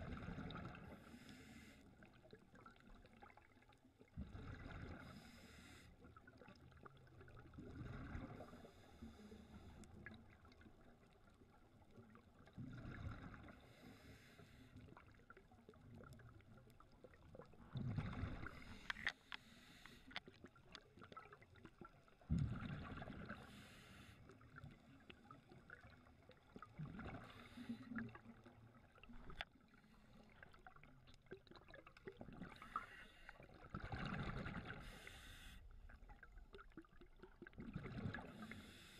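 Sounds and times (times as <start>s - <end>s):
exhaled bubbles underwater: 0.0s - 1.2s, 1.9s - 14.0s, 14.8s - 18.9s, 20.4s - 38.9s.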